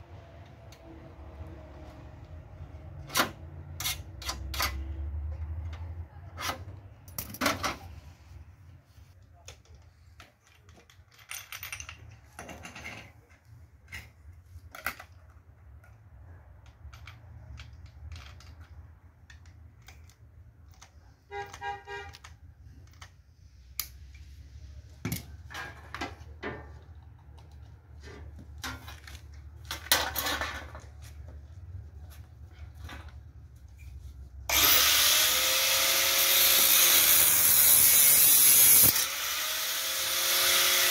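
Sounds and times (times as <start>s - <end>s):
tool handling clicks and rattles: 5.6s - 7.9s, 9.4s - 24.2s, 25.0s - 33.9s.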